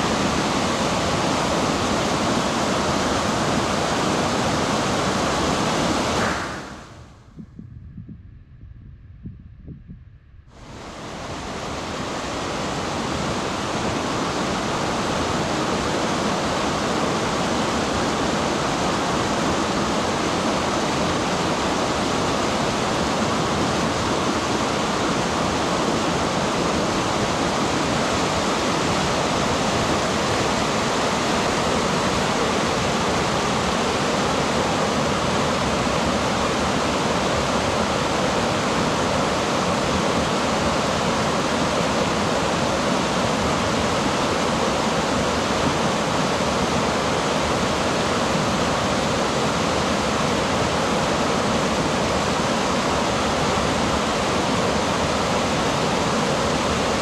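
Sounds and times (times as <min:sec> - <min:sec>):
stream rushing over rapids: 0:00.0 - 0:07.0, 0:10.6 - 0:57.0.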